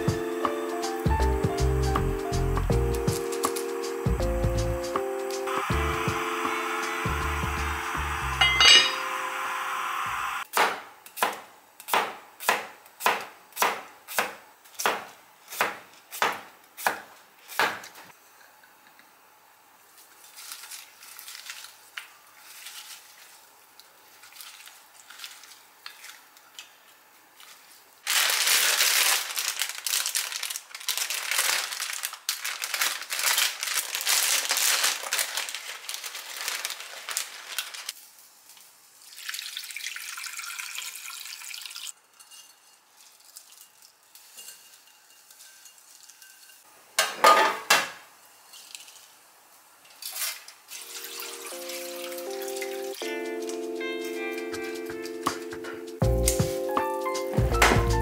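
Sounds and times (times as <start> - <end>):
plastic bag crinkling: 20.2 - 23.5, 27.4 - 38.0.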